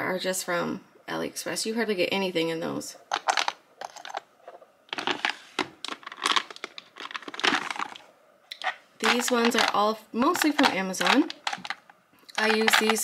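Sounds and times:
small pots rustling in drawer: 3.1s - 13.0s.

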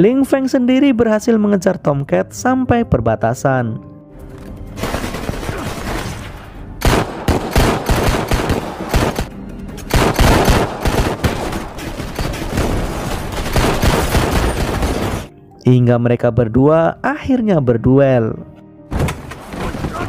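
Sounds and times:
dramatic music score: 1.9s - 20.0s
gunshots: 4.8s - 15.3s.

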